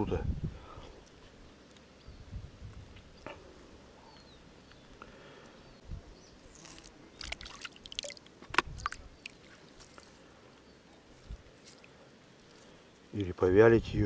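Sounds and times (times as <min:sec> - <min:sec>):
small splashes and squelches: 0:06.5 - 0:10.2
water dripping and sloshing: 0:07.2 - 0:10.1.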